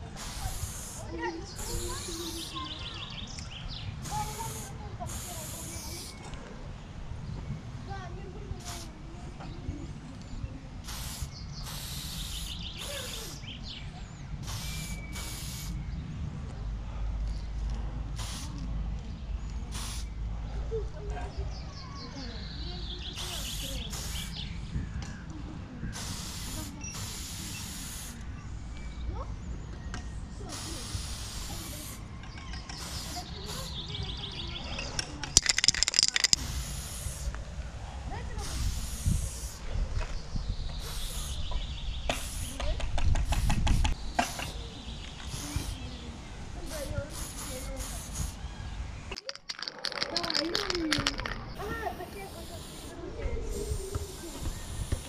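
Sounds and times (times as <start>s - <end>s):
spray paint can hissing: 0.0s - 3.4s, 4.0s - 6.2s, 8.6s - 8.9s, 10.8s - 13.5s, 14.4s - 15.8s, 18.2s - 18.6s, 19.7s - 20.1s, 23.2s - 24.4s, 25.9s - 28.2s, 30.5s - 32.0s, 32.8s - 33.8s, 35.4s - 37.4s, 38.4s - 39.6s, 40.8s - 41.5s, 42.1s - 44.5s, 45.2s - 45.9s, 46.6s - 48.4s, 49.1s - 55.0s
spray can rattling when shaken: 0.2s - 1.0s, 4.0s - 6.2s, 8.6s - 8.9s, 10.9s - 13.4s, 18.2s - 18.5s, 35.3s - 36.6s, 49.1s - 52.9s.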